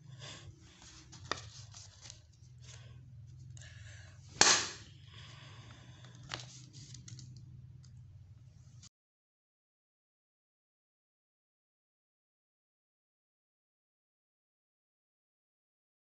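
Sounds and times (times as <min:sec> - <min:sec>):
paper banger crack: 0:00.8 - 0:02.8, 0:04.4 - 0:04.8, 0:06.1 - 0:07.5
paper rustling and clicks: 0:00.8 - 0:02.8, 0:06.0 - 0:08.0.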